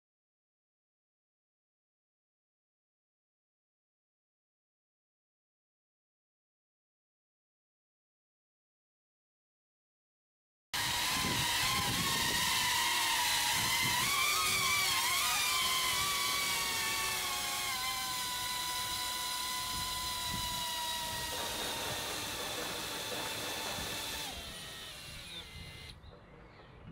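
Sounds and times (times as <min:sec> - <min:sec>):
drone propellers whining: 0:10.8 - 0:26.0.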